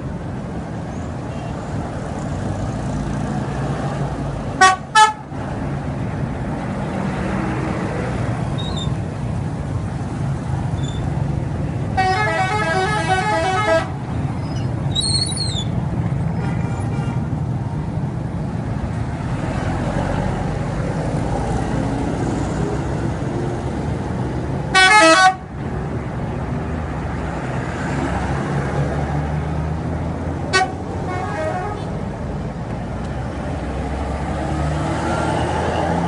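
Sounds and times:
rumble of motorcycle and bus traffic: 0:00.0 - 0:36.0
bus horns playing multi-note tunes: 0:04.6 - 0:05.3, 0:11.9 - 0:14.0, 0:24.7 - 0:25.5, 0:30.5 - 0:31.9.

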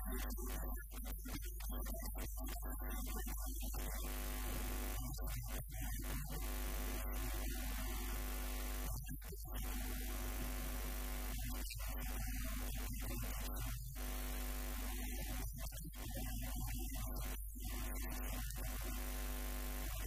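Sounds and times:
electrical mains hum: 0:03.8 - 0:05.0, 0:05.8 - 0:15.4, 0:16.0 - 0:20.0.

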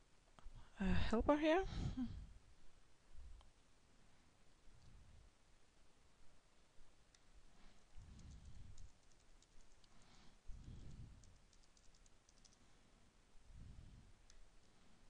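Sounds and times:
light keyboard typing: 0:08.0 - 0:12.7, 0:14.2 - 0:14.8.

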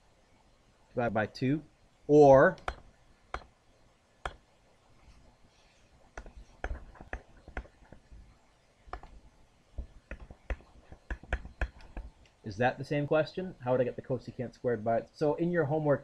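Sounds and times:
pen tapping and clicking on paper: 0:02.6 - 0:03.5, 0:06.2 - 0:08.0, 0:08.9 - 0:09.2, 0:09.8 - 0:12.1.

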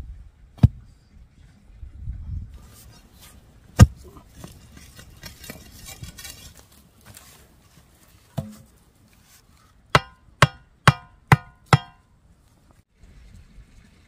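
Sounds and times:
sharp knocks: 0:08.4 - 0:08.7, 0:10.0 - 0:12.0.

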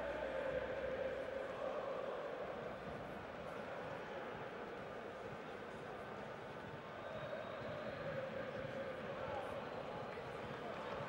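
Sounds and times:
fans singing a chant: 0:00.0 - 0:02.7.

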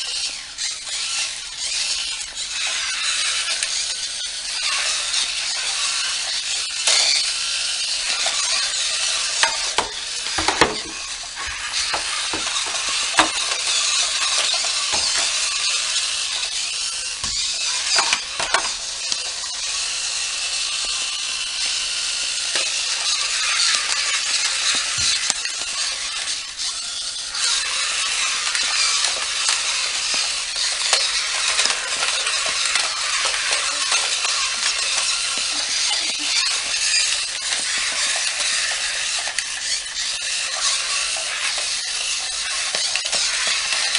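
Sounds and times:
small plastic clicks: 0:00.0 - 0:43.9
toy robots whirring on tile: 0:00.0 - 0:43.9
plastic clacks: 0:08.0 - 0:16.6, 0:17.2 - 0:19.3.

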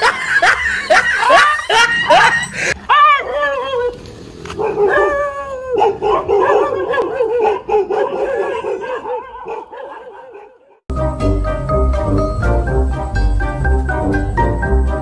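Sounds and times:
dog howling: 0:01.3 - 0:04.0, 0:04.6 - 0:10.7.

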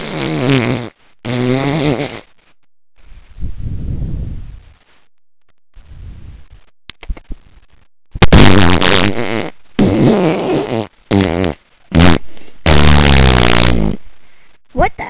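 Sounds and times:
fart noises: 0:00.0 - 0:02.4, 0:08.2 - 0:14.0.

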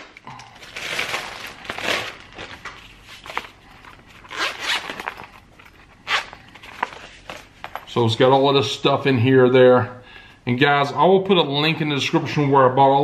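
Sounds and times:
zipper rasping open: 0:03.8 - 0:06.5.

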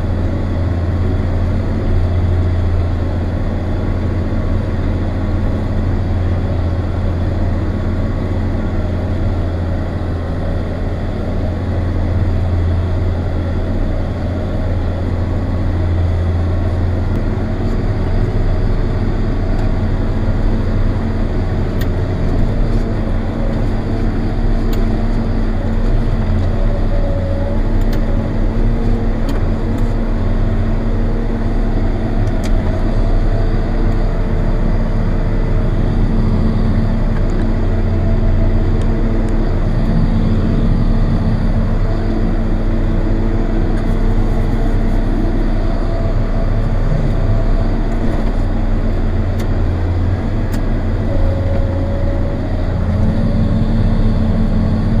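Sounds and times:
tractor diesel engine droning: 0:00.0 - 0:55.0.

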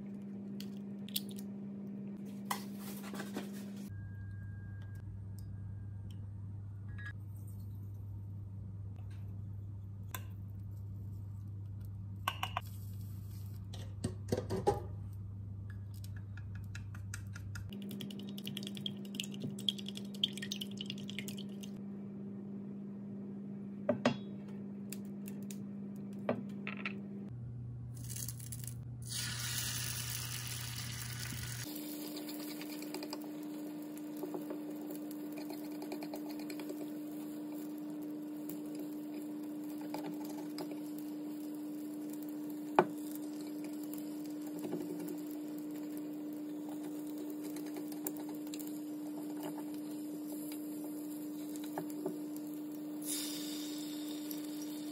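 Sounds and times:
low electric hum: 0:00.0 - 0:54.9
egg sizzling in a pan: 0:29.0 - 0:54.9.

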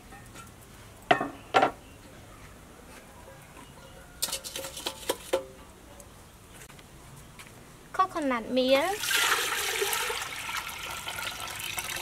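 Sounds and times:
metal pots clanking: 0:03.8 - 0:05.6.

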